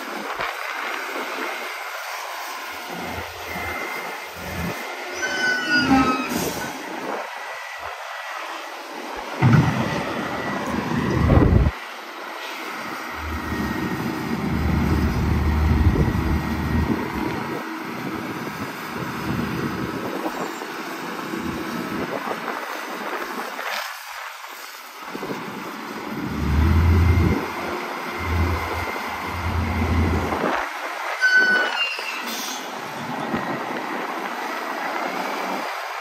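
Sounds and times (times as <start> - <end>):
diesel loader engine revving: 9.4 - 11.7, 12.8 - 20.0, 26.0 - 30.6.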